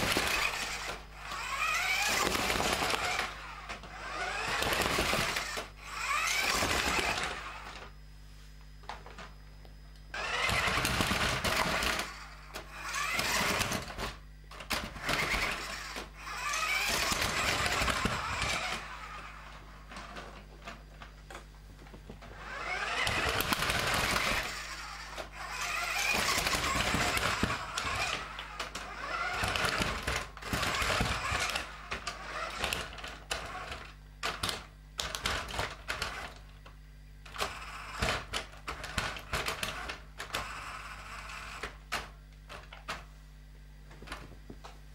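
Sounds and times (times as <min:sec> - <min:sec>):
toy truck motor whirring: 0:00.0 - 0:07.9, 0:10.1 - 0:20.8, 0:22.3 - 0:36.4, 0:37.2 - 0:43.1.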